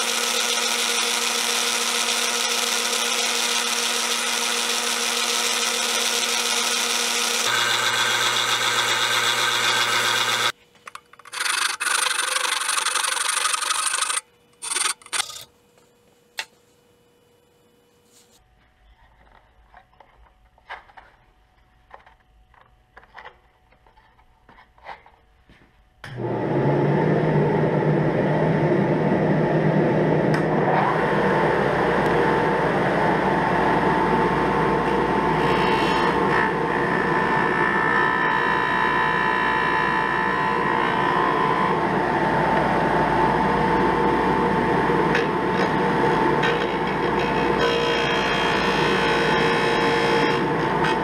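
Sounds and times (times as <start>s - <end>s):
wood being sanded: 0.0s - 10.5s
disc sander running: 0.0s - 15.2s, 28.4s - 51.0s.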